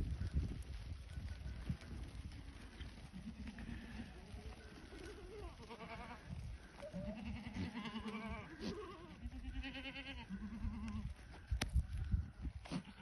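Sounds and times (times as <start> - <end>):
goats bleating: 2.4 - 11.1, 12.6 - 13.0.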